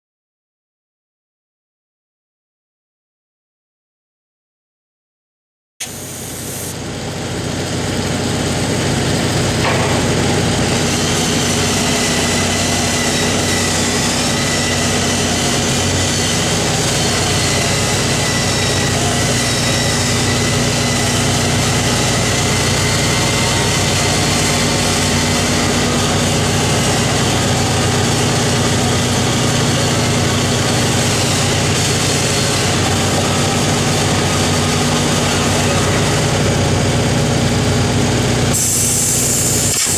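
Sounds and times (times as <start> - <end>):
welding machine engine idling: 5.8 - 39.9.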